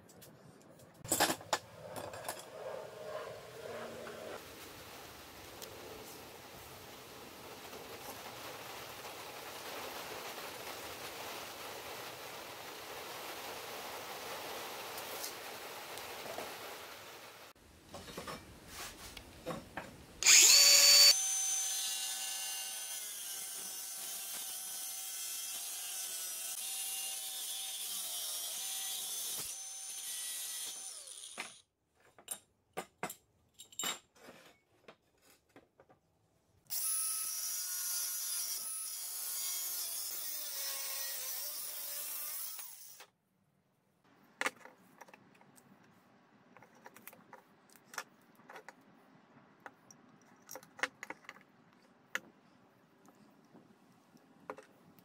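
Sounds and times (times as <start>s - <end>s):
angle grinder cutting steel: 20.2s - 31.6s, 36.7s - 43.0s.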